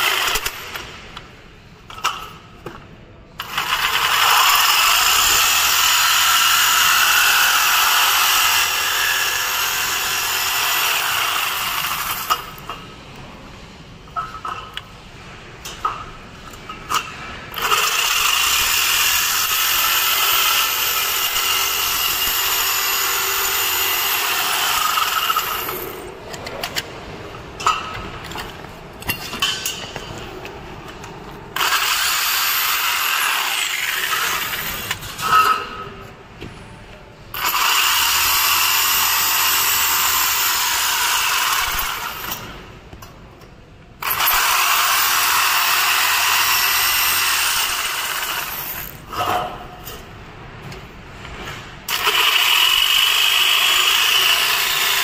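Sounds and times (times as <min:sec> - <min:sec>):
jigsaw cutting metal: 0:00.0 - 0:00.8, 0:03.4 - 0:12.6, 0:17.5 - 0:26.0, 0:31.5 - 0:35.5, 0:37.4 - 0:42.5, 0:44.0 - 0:49.0, 0:51.9 - 0:55.0.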